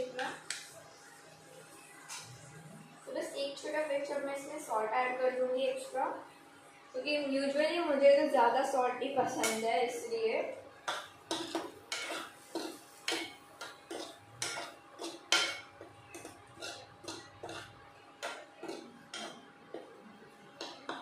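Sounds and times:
spoon scraping and knocking a pan: 0:10.8 - 0:21.0.

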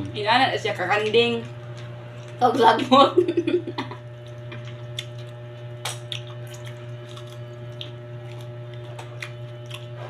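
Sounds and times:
low hum: 0:00.0 - 0:10.0
leaves being torn and chewed: 0:01.4 - 0:02.4, 0:04.2 - 0:10.0.

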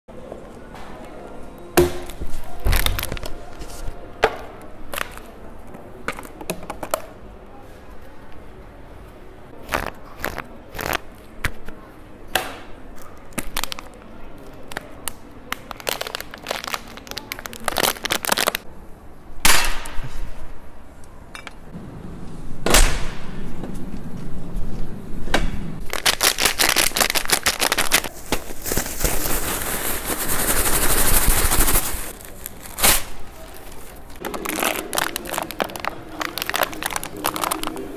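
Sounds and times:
plastic crinkling and popping: 0:02.1 - 0:03.8, 0:13.3 - 0:18.6, 0:25.8 - 0:37.9.

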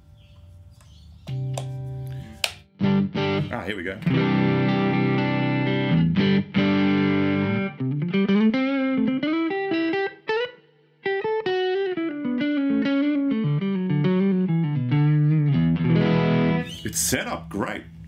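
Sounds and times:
electric guitar lead notes: 0:01.3 - 0:18.0
electric guitar chord: 0:02.8 - 0:16.7.

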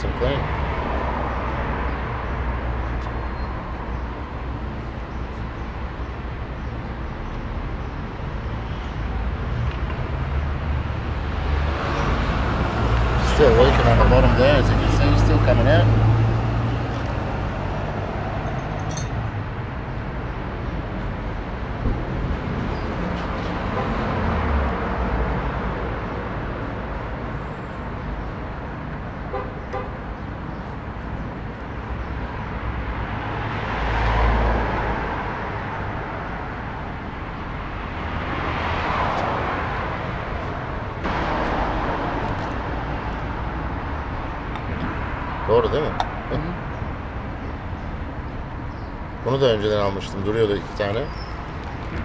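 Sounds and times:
street traffic: 0:00.0 - 0:52.0
vehicles passing: 0:00.0 - 0:52.0.

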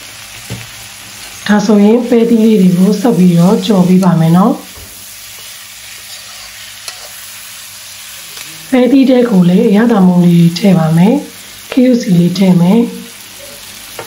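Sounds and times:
stir-fry sizzling: 0:00.0 - 0:14.0
metal spatula scraping wok: 0:05.1 - 0:07.6.

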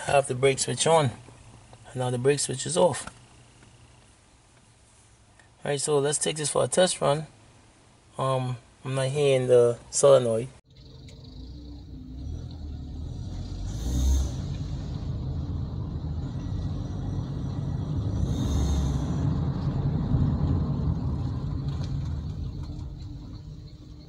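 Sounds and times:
car engine and road rumble: 0:10.6 - 0:24.0
short hisses: 0:18.2 - 0:19.3.

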